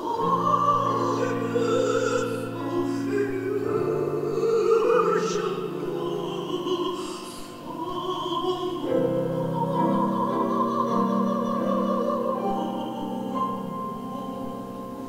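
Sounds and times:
piano accompaniment: 0.0s - 15.0s
woman singing: 0.0s - 15.0s.

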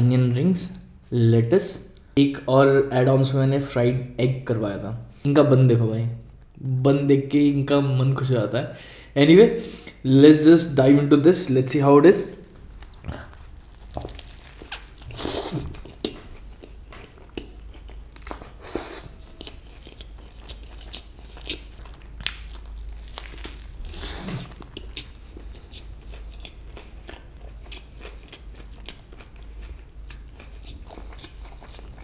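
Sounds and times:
burger crunching: 12.5s - 32.0s
wet chewing clicks: 12.8s - 32.0s.

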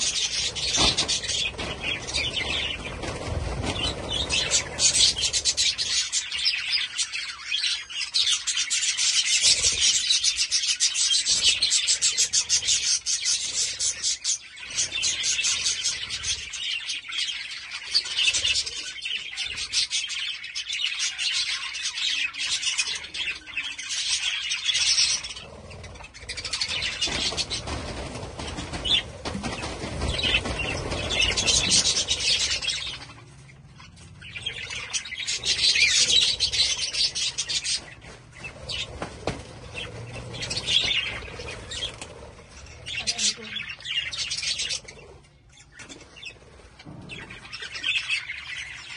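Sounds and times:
budgerigars chattering and chirping: 0.0s - 48.9s.

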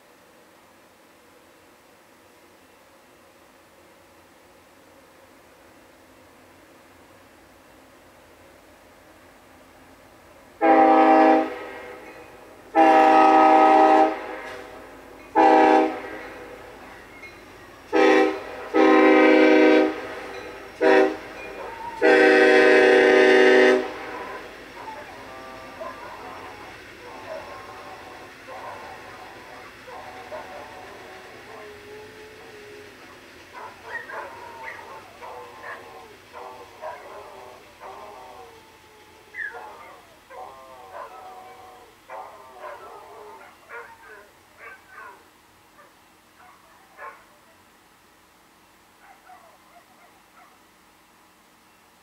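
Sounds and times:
locomotive horn blasts: 10.6s - 16.7s, 17.9s - 26.8s
dog barking and yipping: 21.6s - 22.0s, 24.8s - 27.6s, 28.5s - 31.8s, 33.1s - 38.6s, 39.3s - 45.2s, 45.8s - 47.6s, 49.0s - 50.6s.

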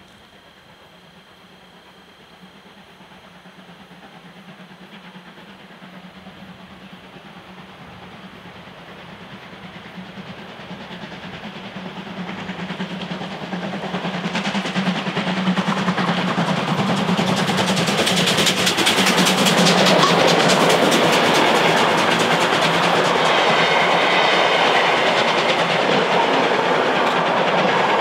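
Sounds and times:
steam locomotive passing: 0.0s - 28.0s
exhaust beats and running gear rattle: 11.0s - 28.0s.

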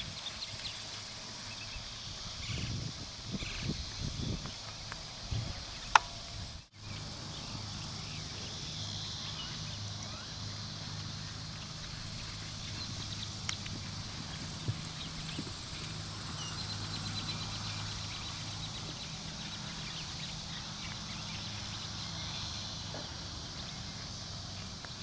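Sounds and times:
high hiss: 0.0s - 25.0s
steady low hum: 0.0s - 25.0s
hooves on dirt: 7.5s - 20.2s.

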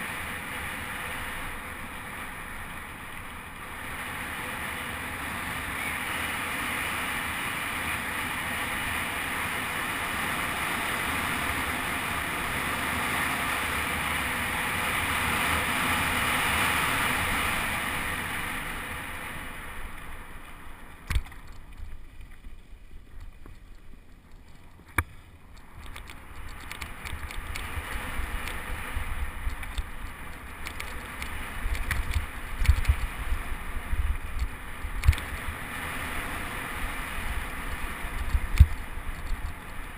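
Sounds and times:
bike tyre noise: 0.0s - 39.9s
wind rushing over camera: 0.0s - 39.9s
bike rattling over rough ground: 17.4s - 39.9s
sharp clicks: 24.9s - 27.7s, 29.4s - 33.1s, 34.3s - 35.4s.

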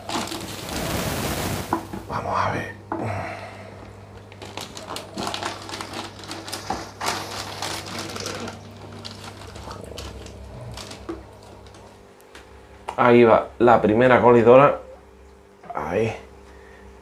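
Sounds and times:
plastic bag crinkling: 0.0s - 1.8s, 4.2s - 12.0s
steady low hum: 0.0s - 17.0s.

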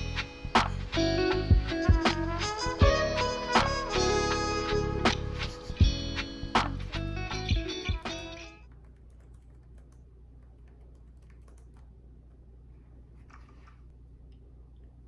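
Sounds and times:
low room hum: 6.9s - 15.0s
laptop keyboard typing: 8.5s - 12.0s.

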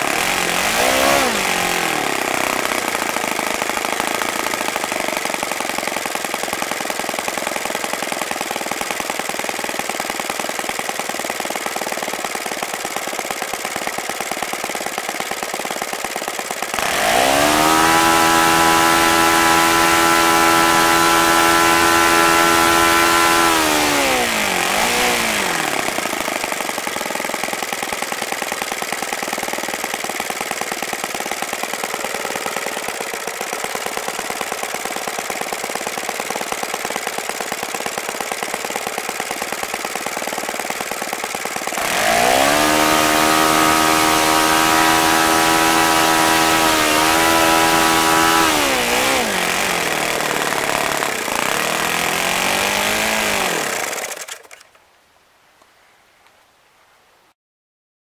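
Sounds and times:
model airplane engine revving: 0.0s - 54.7s.

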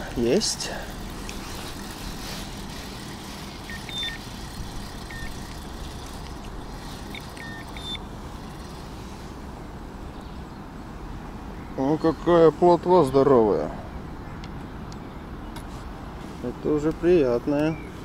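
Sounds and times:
wind noise on microphone: 1.0s - 7.9s
faint high chirps: 3.6s - 4.3s, 6.9s - 8.8s.

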